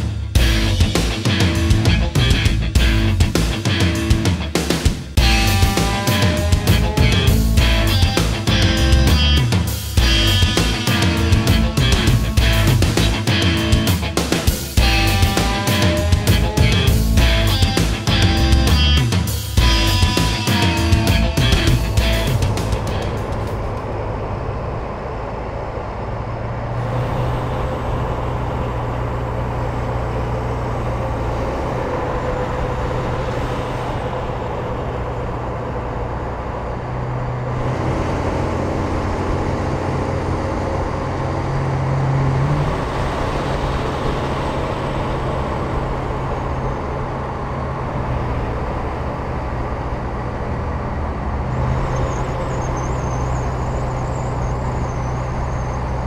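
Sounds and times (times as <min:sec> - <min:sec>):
road and wind noise: 0:00.0 - 0:56.0
truck engine drone: 0:00.0 - 0:56.0.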